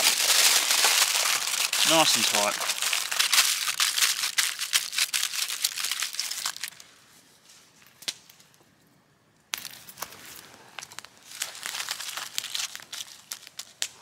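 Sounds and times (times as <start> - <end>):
aluminium foil crinkling: 0.0 - 6.9, 10.0 - 14.0.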